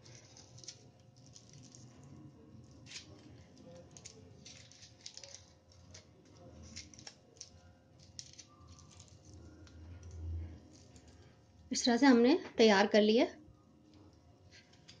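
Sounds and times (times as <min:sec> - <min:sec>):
foil wrapper crinkling: 0:00.0 - 0:11.4.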